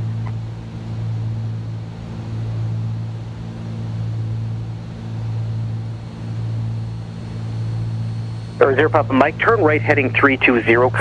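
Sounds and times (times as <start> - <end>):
twin propeller plane engines droning: 0.0 - 11.0.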